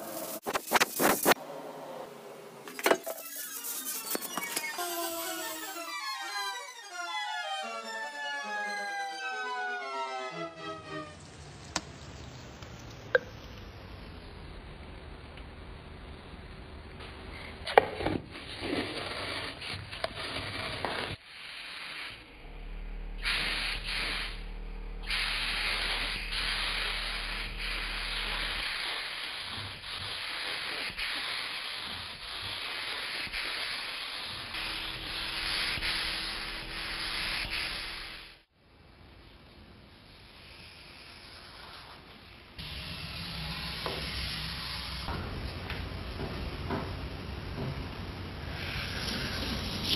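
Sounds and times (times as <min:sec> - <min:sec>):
paint spray gun hiss: 0:23.2 - 0:24.4, 0:25.0 - 0:38.5, 0:40.2 - 0:45.8.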